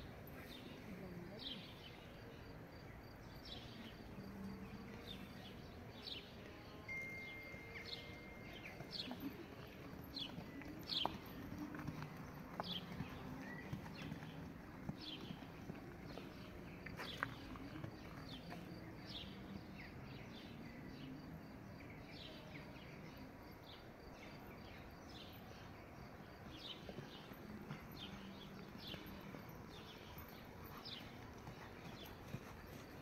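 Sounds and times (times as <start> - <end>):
outdoor background noise: 0.0 - 33.0
small birds chirping: 0.4 - 33.0
horse hoofbeats on sand: 7.8 - 19.3, 25.4 - 33.0.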